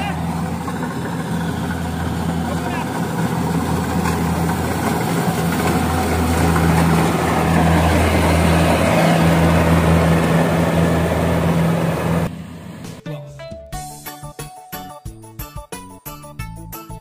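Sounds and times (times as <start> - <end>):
broad rushing noise: 0.0 - 13.0
combine harvester engine hum: 0.0 - 13.0.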